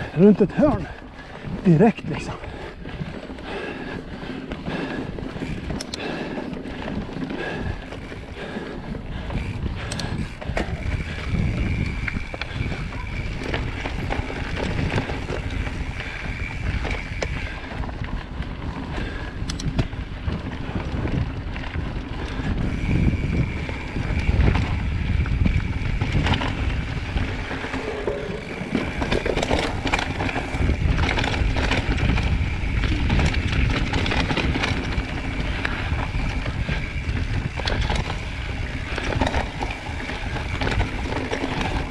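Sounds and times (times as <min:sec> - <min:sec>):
bike rattling and knocking: 0:00.0 - 0:41.9
wind rushing over microphone: 0:00.0 - 0:41.9
tyres rumbling on dirt: 0:20.6 - 0:41.9.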